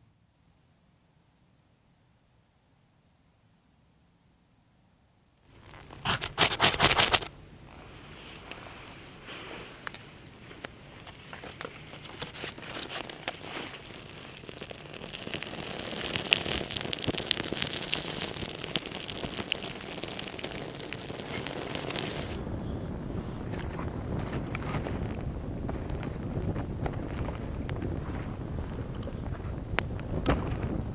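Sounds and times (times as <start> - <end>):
crackling and rustling: 5.4 - 30.9
campfire crackling and popping: 5.5 - 7.3, 9.8 - 30.9.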